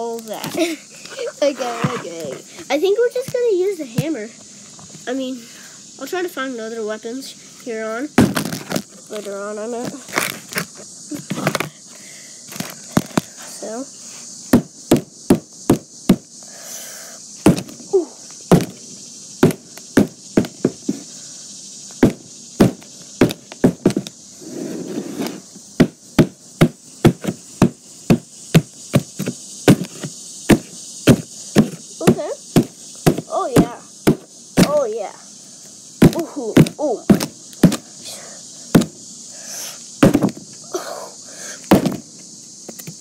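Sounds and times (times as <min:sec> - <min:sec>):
claw hammer striking a box: 0:17.4 - 0:17.8, 0:32.6 - 0:34.8, 0:36.0 - 0:37.8, 0:38.7 - 0:38.9, 0:40.0 - 0:40.4, 0:41.7 - 0:42.0.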